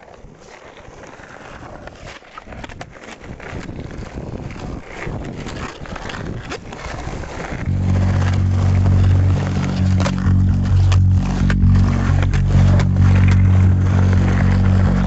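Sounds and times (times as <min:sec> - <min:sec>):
skateboard rolling on pavement: 0:00.0 - 0:08.1
band playing held low note: 0:07.7 - 0:15.0.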